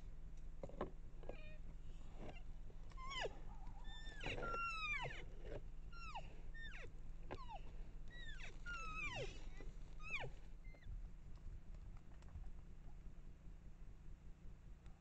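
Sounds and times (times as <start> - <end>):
coyotes yipping and howling: 2.2 - 11.0.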